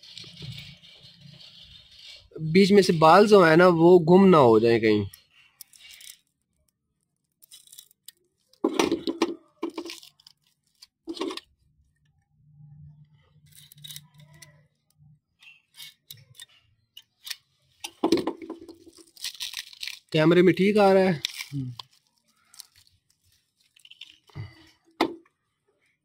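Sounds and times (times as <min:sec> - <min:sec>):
plastic crinkling: 0:05.1 - 0:12.1, 0:18.4 - 0:25.0.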